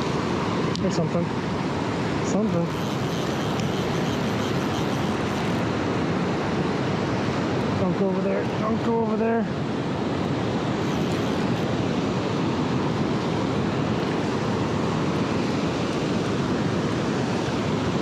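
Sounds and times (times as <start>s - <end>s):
water rushing over rocks: 0.0s - 18.0s.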